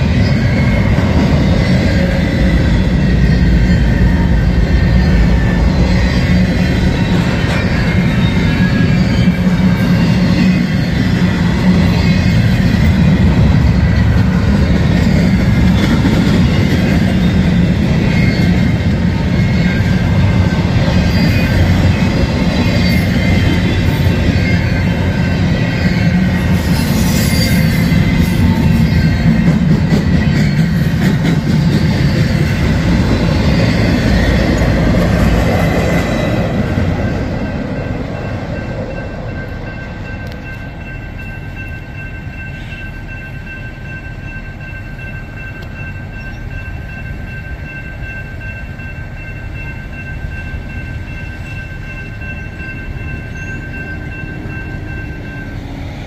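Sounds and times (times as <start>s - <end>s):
high-pitched wheel squeal: 0.0s - 13.0s, 16.8s - 29.6s
train wheels rumbling on rails: 0.0s - 56.0s.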